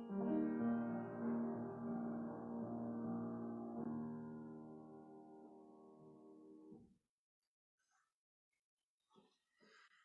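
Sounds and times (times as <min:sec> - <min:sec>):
slow keyboard chord: 0:00.0 - 0:06.7.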